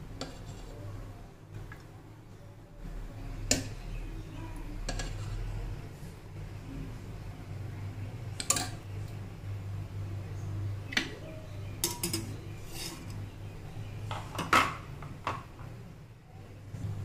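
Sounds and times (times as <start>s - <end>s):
kitchenware clinking: 4.8s - 5.5s, 8.4s - 8.9s, 10.9s - 13.2s, 14.0s - 15.5s.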